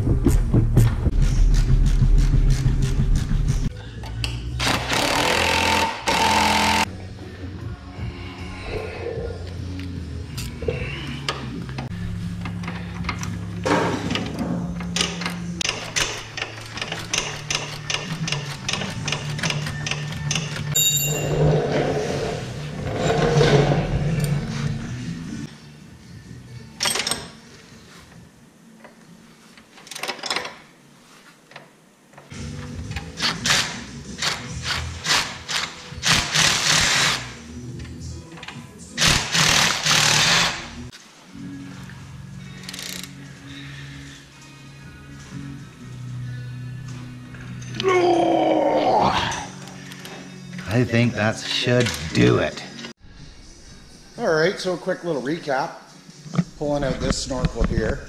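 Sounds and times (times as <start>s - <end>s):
background music: 0.0s - 31.0s, 31.8s - 58.0s
power tool bursts: 4.6s - 6.9s, 39.0s - 40.7s
ratchet wrench clicking: 15.0s - 20.7s, 42.6s - 43.2s.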